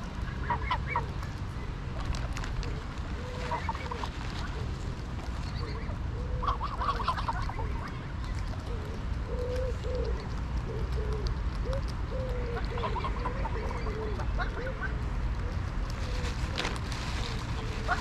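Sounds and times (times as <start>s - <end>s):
higher goose calls: 3.2s - 4.1s
geese honking: 5.6s - 7.9s, 12.5s - 15.0s.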